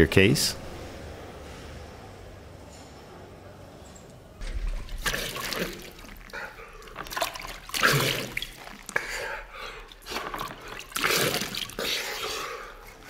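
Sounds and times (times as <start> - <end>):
water splashed onto a face: 4.4 - 12.3
water dripping and trickling: 4.4 - 13.0.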